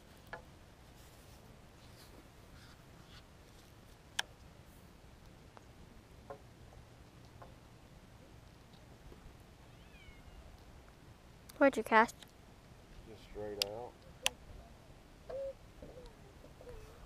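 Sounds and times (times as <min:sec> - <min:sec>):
faint short clicks: 0:13.6 - 0:14.4.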